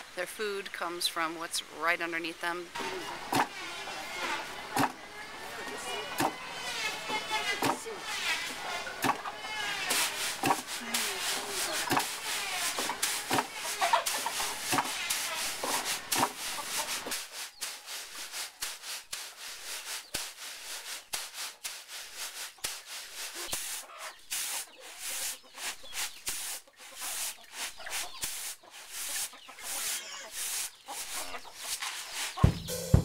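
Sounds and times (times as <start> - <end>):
rice scraping on bamboo tray: 2.8 - 32.9
rustling: 2.8 - 32.9
wooden knocks: 32.4 - 33.0.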